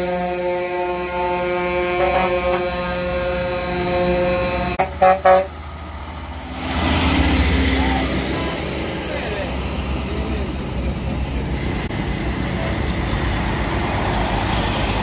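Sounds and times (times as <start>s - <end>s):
truck air horn blasts: 0.0s - 5.6s.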